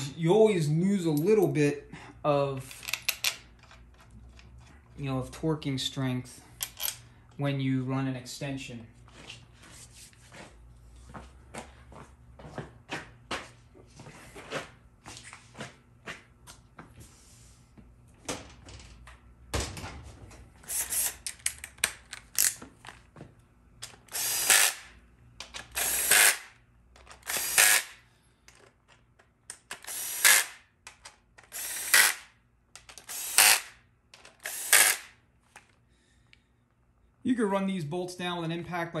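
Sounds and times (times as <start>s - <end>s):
tool and bolts clicking: 2.6s - 4.7s, 6.6s - 7.0s, 20.7s - 23.0s, 25.4s - 27.9s, 28.5s - 35.1s
impact wrench hammering: 24.0s - 26.6s.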